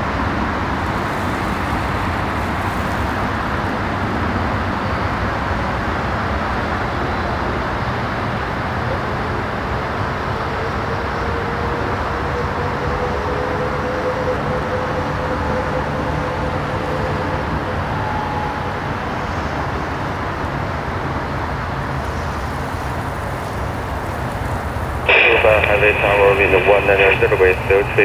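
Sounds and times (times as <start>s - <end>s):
faint engine whine: 0.0s - 28.0s
jet engines roaring: 25.0s - 28.0s.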